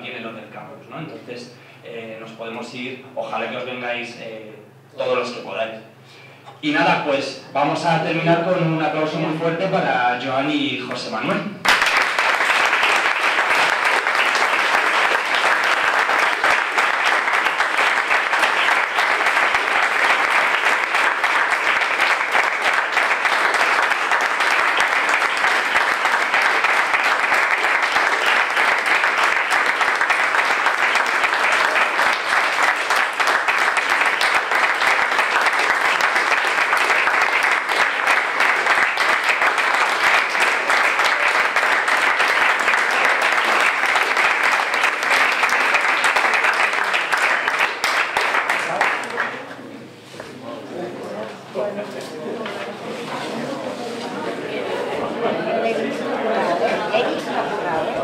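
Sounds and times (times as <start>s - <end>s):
crowd applauding: 11.6s - 49.7s.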